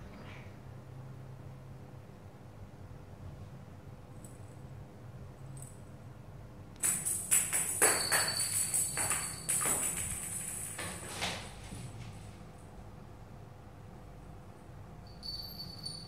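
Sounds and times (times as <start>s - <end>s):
bell in toy ball jingling: 6.8s - 11.0s, 15.0s - 16.0s
toy ball knocking on tile floor: 6.8s - 11.0s.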